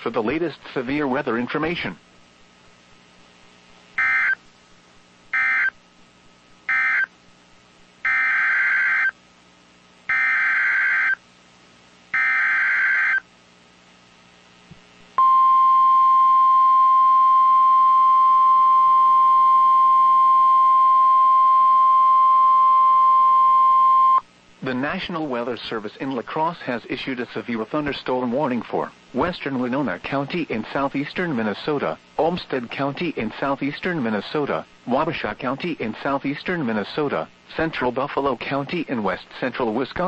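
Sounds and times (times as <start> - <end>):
steady warning alarm tone: 4.0 - 4.4, 5.4 - 5.8, 6.7 - 7.1, 8.0 - 9.2, 10.1 - 11.2, 12.2 - 13.2.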